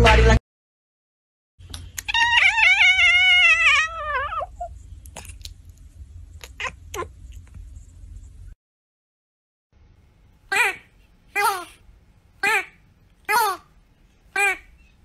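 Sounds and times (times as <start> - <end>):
cat meowing: 2.0 - 4.7, 6.4 - 7.1.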